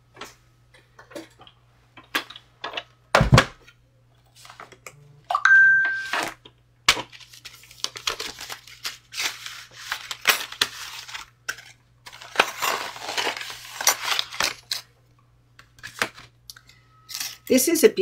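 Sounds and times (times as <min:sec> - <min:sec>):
plastic sheet crinkling: 0:07.0 - 0:14.8.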